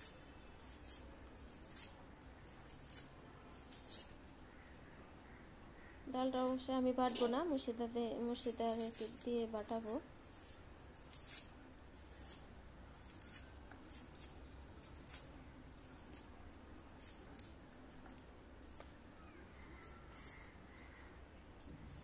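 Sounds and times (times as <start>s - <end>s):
onions cut against a blade: 0.0s - 4.4s, 8.2s - 16.4s, 17.0s - 18.9s, 19.8s - 20.4s.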